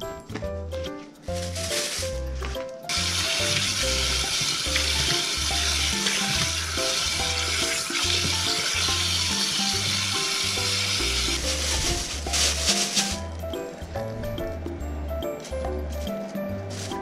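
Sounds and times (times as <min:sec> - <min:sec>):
tap water running into steel bowl: 0:03.0 - 0:11.2.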